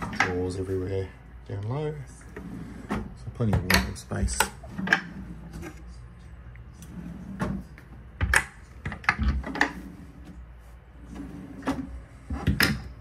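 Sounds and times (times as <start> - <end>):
drawers clicking and knocking: 2.4 - 5.8, 6.8 - 10.4, 11.1 - 13.0.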